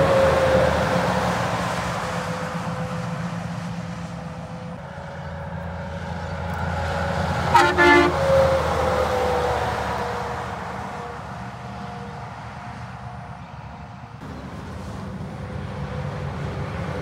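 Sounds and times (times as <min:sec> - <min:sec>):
heavy trucks passing: 0:00.0 - 0:17.0
truck air horn blast: 0:07.4 - 0:08.7.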